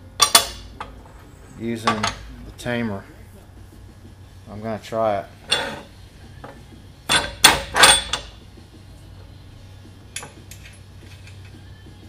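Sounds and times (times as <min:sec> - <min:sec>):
steel parts clattering and scraping: 0:05.4 - 0:06.0.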